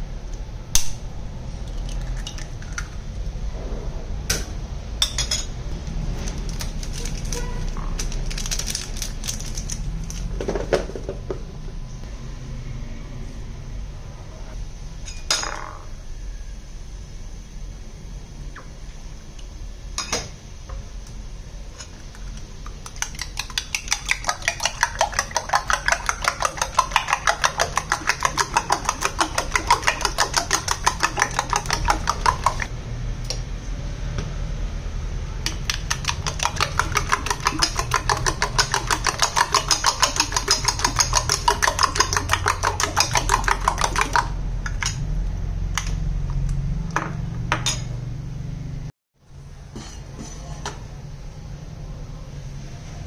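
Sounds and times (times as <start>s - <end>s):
spoon clinking in ceramic bowl: 22.9s - 32.7s, 35.5s - 45.0s.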